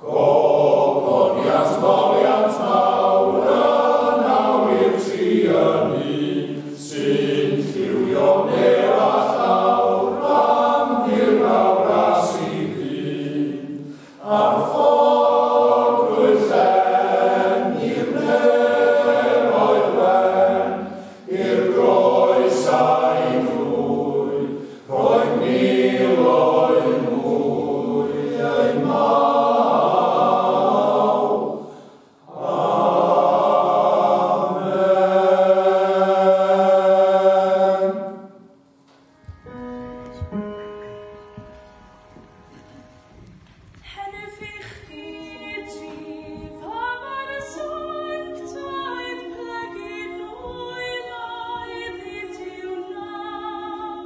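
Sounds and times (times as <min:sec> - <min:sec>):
men's choir singing unaccompanied: 0:00.0 - 0:38.5.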